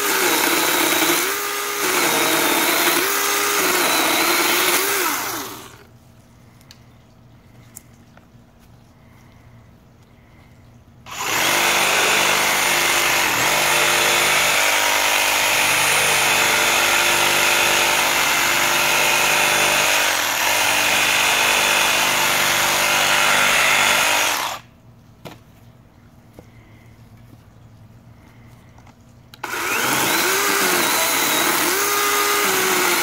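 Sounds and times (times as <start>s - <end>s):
reciprocating saw cutting wood: 0.0s - 5.9s, 11.1s - 24.7s, 29.4s - 33.0s.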